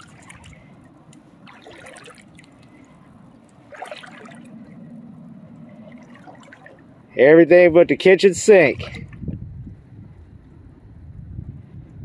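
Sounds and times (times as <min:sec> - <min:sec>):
water lapping against hull: 0:00.0 - 0:07.1, 0:08.4 - 0:09.5.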